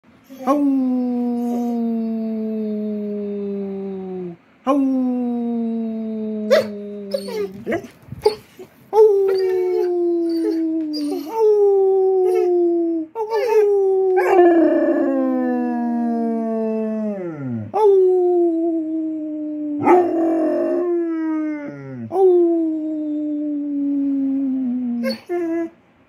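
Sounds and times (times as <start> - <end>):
dog howling: 6.2 - 18.6, 19.5 - 22.6.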